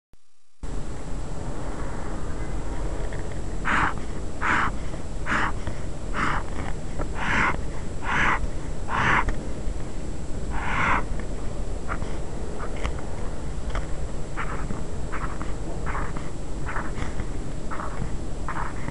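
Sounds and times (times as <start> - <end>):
steady hiss: 0.4 - 18.9
pen scratching on paper: 14.4 - 18.9.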